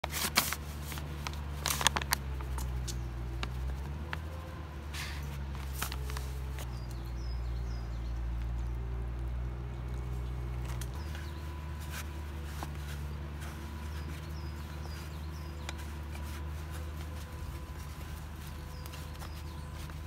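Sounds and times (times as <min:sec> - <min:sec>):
paper bag crinkling: 0:00.0 - 0:02.8, 0:05.0 - 0:06.7.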